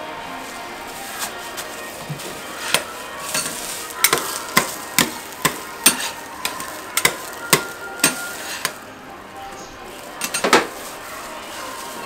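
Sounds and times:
metal spatulas clacking on griddle: 2.6s - 8.8s, 10.2s - 10.9s.

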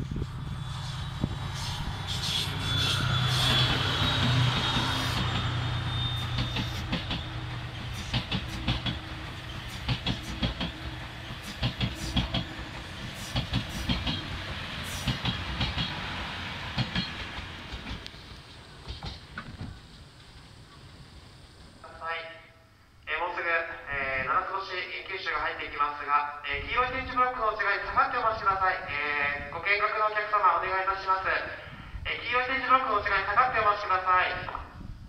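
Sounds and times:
diesel locomotive engine hum: 0.0s - 23.0s
train wheels clicking over rail joints: 1.2s - 21.8s.

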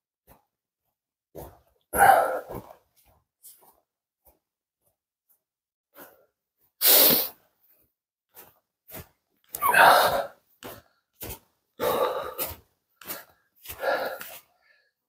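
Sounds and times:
heavy breathing: 2.0s - 2.8s, 11.8s - 15.0s
footsteps on snow: 7.0s - 14.6s.

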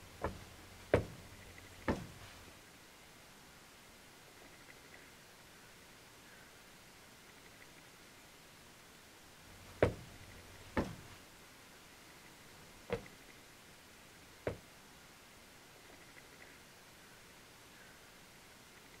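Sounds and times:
single knocks: 1.8s - 2.2s.

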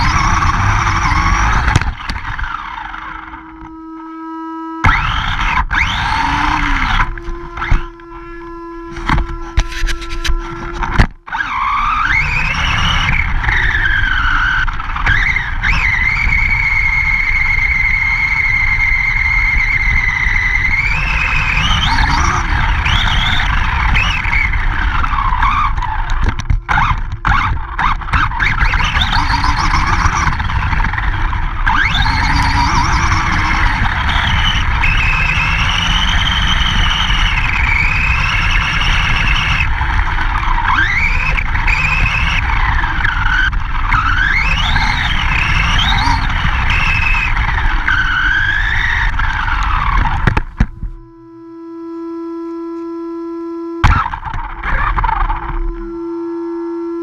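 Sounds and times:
toy truck motor whining: 0.0s - 51.4s.

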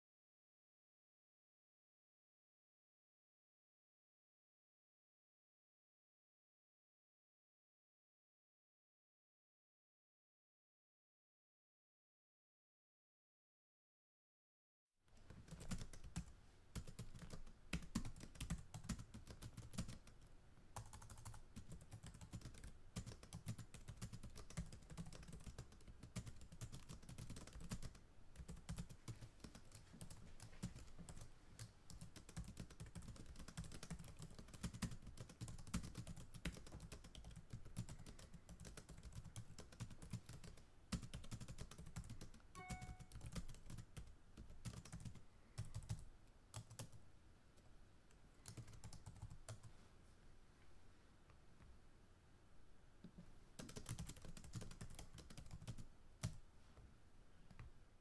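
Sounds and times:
keyboard typing: 15.2s - 20.2s, 20.8s - 47.0s, 48.4s - 49.7s, 53.6s - 56.4s
brief pitched tone: 42.6s - 43.1s.

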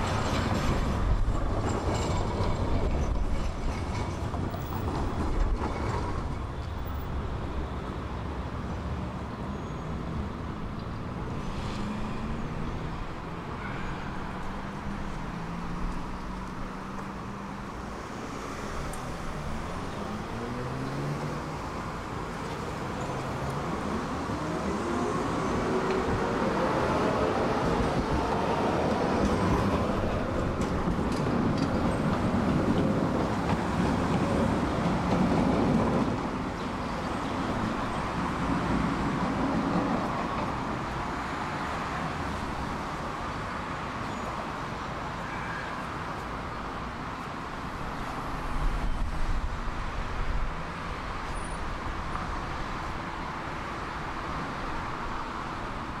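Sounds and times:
street traffic noise: 0.0s - 56.0s
tram motor whine and wheel rumble: 21.6s - 41.2s.

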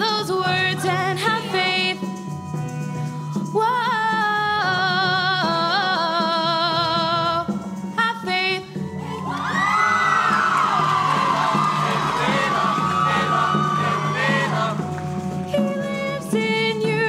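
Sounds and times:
woman singing with vibrato: 0.0s - 2.1s, 3.5s - 8.8s, 15.5s - 17.0s
live band playing: 0.0s - 17.0s.

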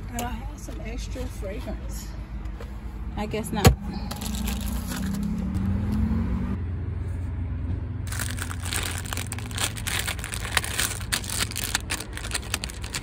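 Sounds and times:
plastic wipes pack crinkling: 8.1s - 13.0s.

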